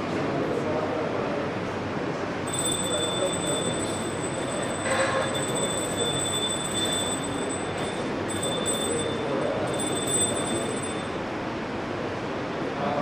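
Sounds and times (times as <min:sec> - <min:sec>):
hand bell ringing: 0:02.5 - 0:11.3.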